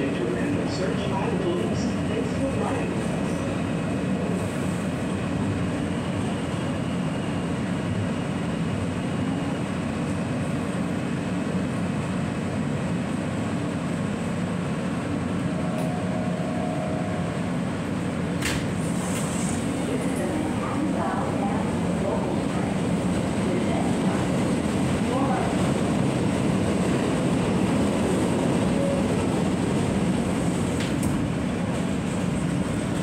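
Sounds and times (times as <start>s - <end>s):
subway car wheels rumbling: 0.0s - 33.0s.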